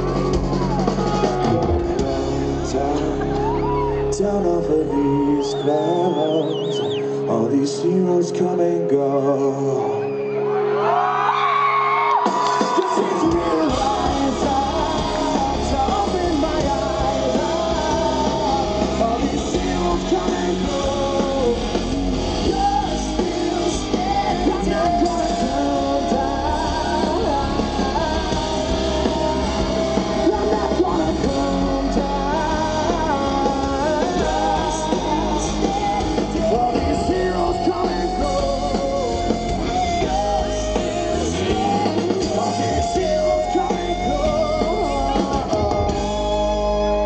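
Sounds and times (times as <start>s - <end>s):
electric guitar: 0.0s - 47.0s
rock band playing live: 0.0s - 47.0s
man singing long held notes: 1.0s - 10.1s, 12.6s - 47.0s.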